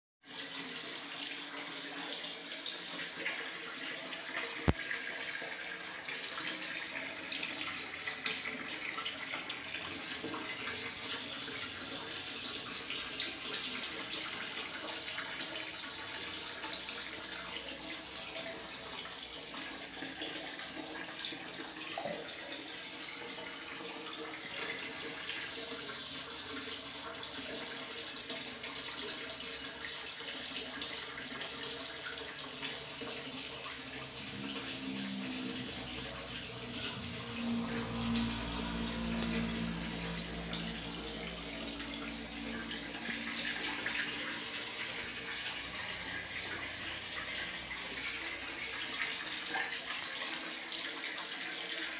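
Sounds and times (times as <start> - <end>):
running water hissing: 33.8 - 49.7.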